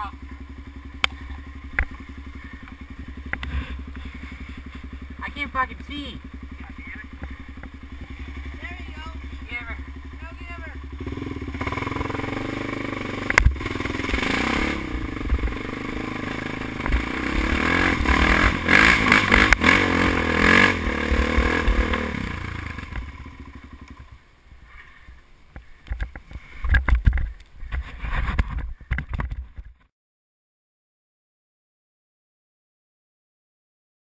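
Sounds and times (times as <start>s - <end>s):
quad bike engine revving: 0.0s - 24.2s.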